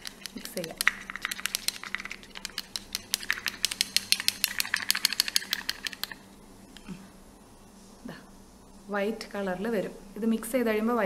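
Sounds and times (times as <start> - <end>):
plastic spoon clicking in jar: 0.0 - 6.2.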